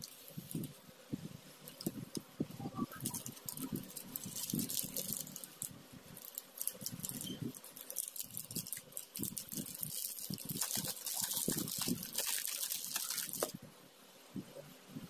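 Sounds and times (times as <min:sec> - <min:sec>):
plastic wrapping crinkling: 0:00.0 - 0:00.8, 0:01.6 - 0:02.0, 0:02.9 - 0:13.6.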